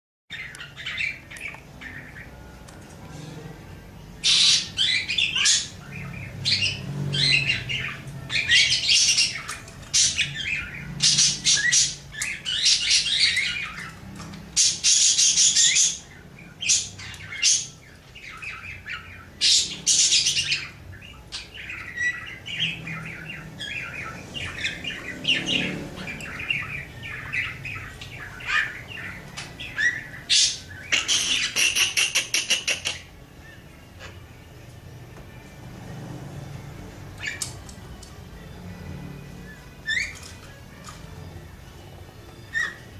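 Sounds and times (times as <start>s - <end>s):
budgerigar warbling and chirping: 0.3s - 2.5s, 4.2s - 34.4s, 37.2s - 37.6s, 39.4s - 41.1s, 42.4s - 42.9s.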